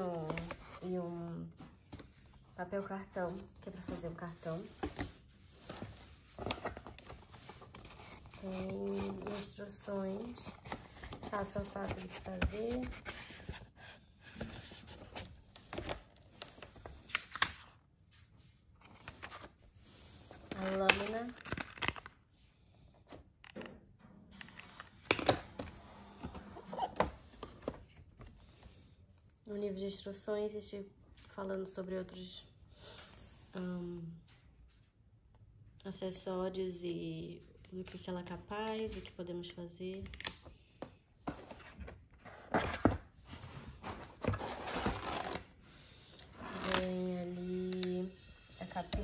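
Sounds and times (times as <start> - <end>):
booklet pages rustling: 0.0 - 17.8, 18.4 - 22.3, 24.4 - 29.3, 40.2 - 45.6, 46.2 - 48.0, 48.6 - 49.0
plastic and cardboard packaging handling: 0.0 - 17.8, 18.8 - 22.4, 24.4 - 29.3, 40.8 - 48.0
items shifting in cardboard box: 41.3 - 45.4.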